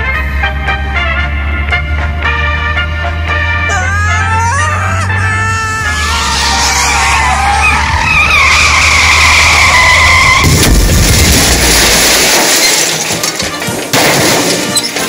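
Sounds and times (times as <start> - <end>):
low engine rumble: 0.0 - 11.9
car tyres squealing: 3.5 - 10.8
loud rough noise: 5.1 - 14.8.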